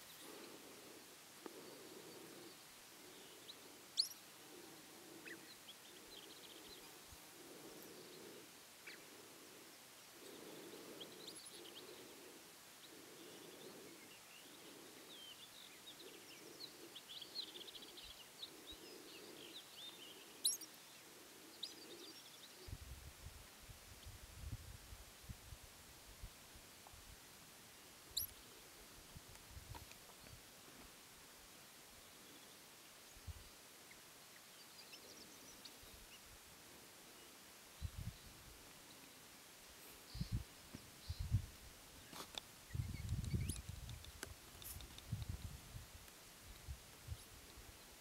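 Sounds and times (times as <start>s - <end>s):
bird chirps and twittering: 42.7s - 44.1s.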